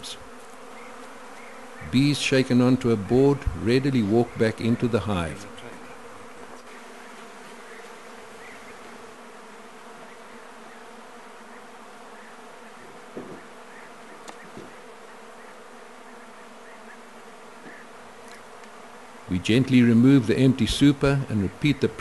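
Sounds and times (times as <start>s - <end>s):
honeybees buzzing: 0.0s - 22.0s
soft knocks: 13.2s - 13.4s.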